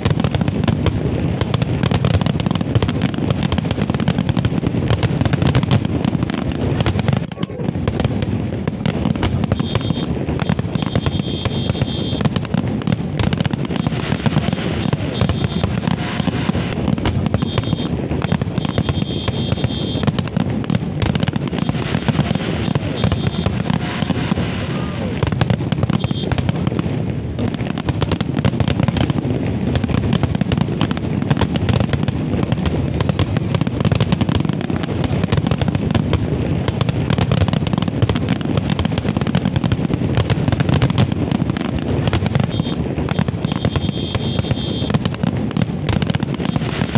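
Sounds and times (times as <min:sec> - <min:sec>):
fireworks bangs: 0:00.0 - 0:46.9
crowd voices: 0:06.6 - 0:08.6, 0:13.0 - 0:20.6, 0:21.3 - 0:27.0, 0:33.2 - 0:33.9.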